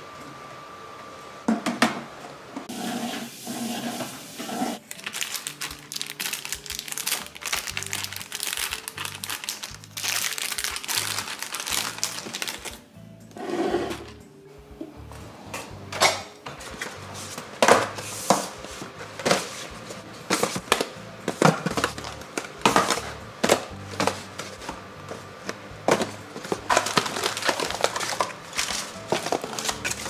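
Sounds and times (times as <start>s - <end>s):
plastic wrapping rustling: 3.8s - 12.9s, 16.5s - 30.0s.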